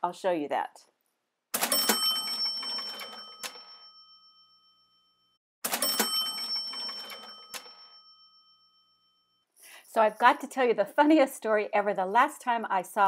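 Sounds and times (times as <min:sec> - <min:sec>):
cash register ka-ching: 0:01.6 - 0:04.1, 0:05.6 - 0:08.2.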